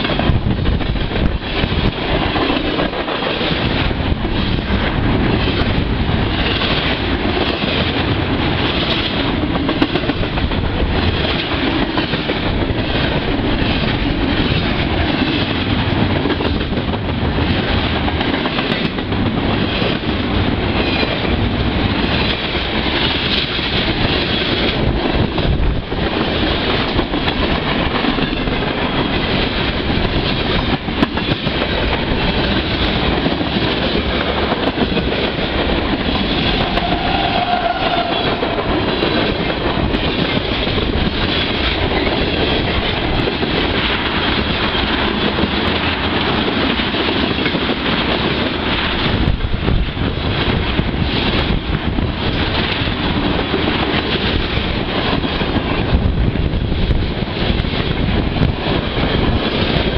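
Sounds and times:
freight train rolling past: 0:00.0 - 0:59.9
train wheel squeal: 0:36.1 - 0:39.3.

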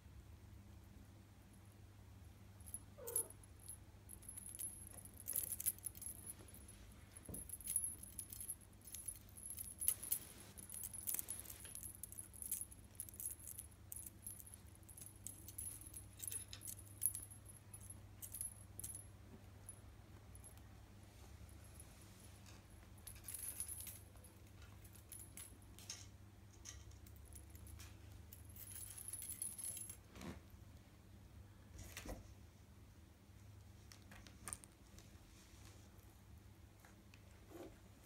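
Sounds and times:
cat toys jingling and rattling: 0:02.7 - 0:19.0, 0:23.0 - 0:24.2
kitten mewing: 0:03.0 - 0:03.4.

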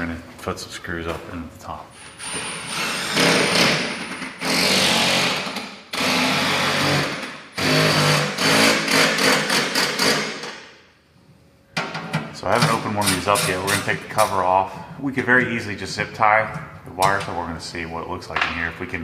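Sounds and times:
cordless drill driving screws: 0:02.2 - 0:03.8.

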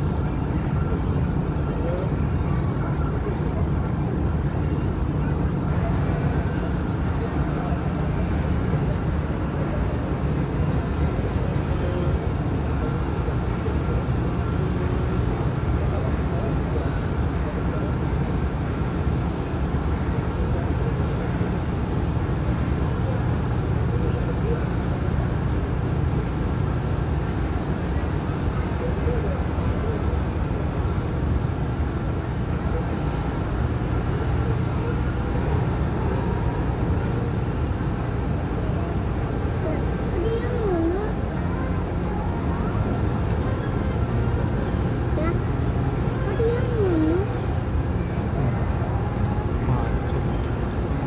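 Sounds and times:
ship engine and propeller rumble: 0:00.0 - 0:51.0.

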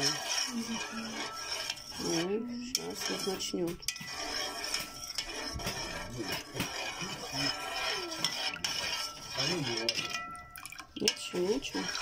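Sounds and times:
metal spoon stirring in metal pot: 0:00.0 - 0:12.0.

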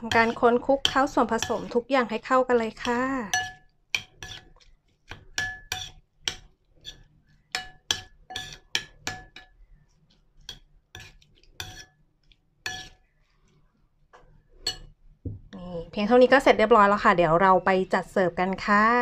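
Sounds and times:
metal spoon clinking ceramic bowl: 0:02.8 - 0:09.6, 0:12.6 - 0:13.0, 0:14.6 - 0:14.9.

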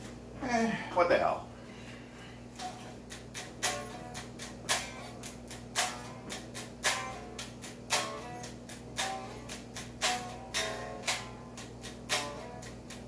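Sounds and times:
low electrical hum: 0:00.0 - 0:13.0
electric guitar picked notes: 0:02.6 - 0:13.0.

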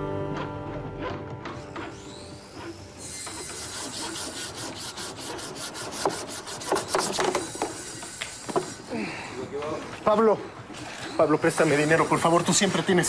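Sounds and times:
sandpaper scratching on wood: 0:02.1 - 0:08.8, 0:11.0 - 0:13.0
knocks against wood: 0:06.0 - 0:07.8.

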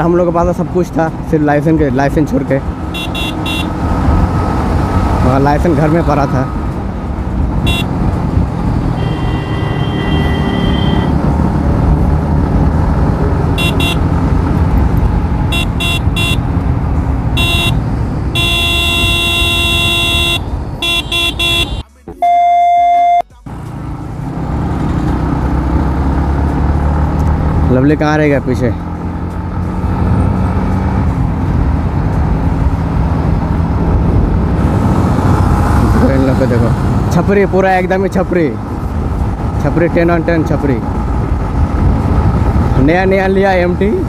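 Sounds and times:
wind and road rush: 0:00.0 - 0:44.0
vehicle horn honking: 0:02.9 - 0:03.7, 0:07.6 - 0:07.9, 0:08.9 - 0:11.1, 0:13.6 - 0:14.1, 0:15.5 - 0:16.5, 0:17.4 - 0:23.2
loud steady tone: 0:18.4 - 0:23.4.

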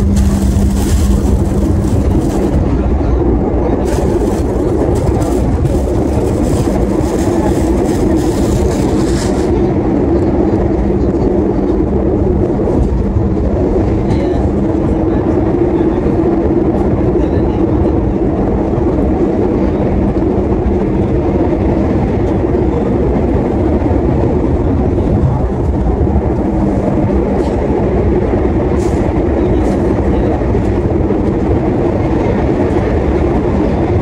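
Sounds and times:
constant hum: 0:00.0 - 0:34.0
train carriage rumbling on rails: 0:00.0 - 0:34.0.

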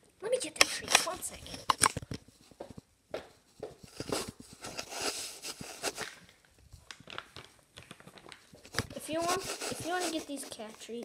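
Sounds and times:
footsteps on tiled floor: 0:00.9 - 0:06.2, 0:08.5 - 0:10.9
rustling: 0:03.4 - 0:11.0.

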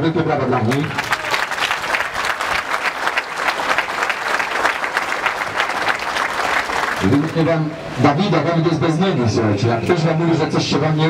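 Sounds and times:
large crowd applauding: 0:00.7 - 0:07.4.

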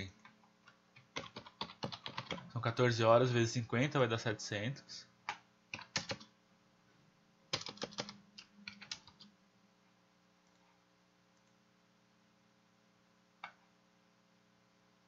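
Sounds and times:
computer keyboard keystrokes: 0:00.2 - 0:02.5, 0:05.3 - 0:06.3, 0:07.5 - 0:09.3.

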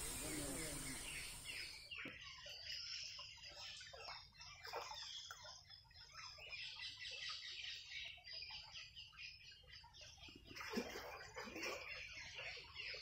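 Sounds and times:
lower bird calls: 0:00.0 - 0:02.2
birds chirping: 0:00.0 - 0:10.6.

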